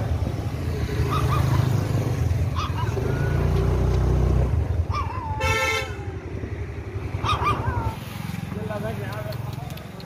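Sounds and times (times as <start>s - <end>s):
puppy yelping: 1.0s - 3.5s, 4.8s - 5.5s, 7.1s - 8.0s.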